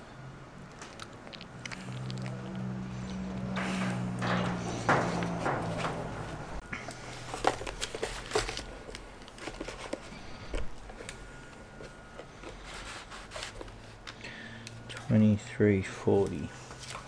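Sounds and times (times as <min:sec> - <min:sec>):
light knocks and rustling: 0:03.6 - 0:06.4.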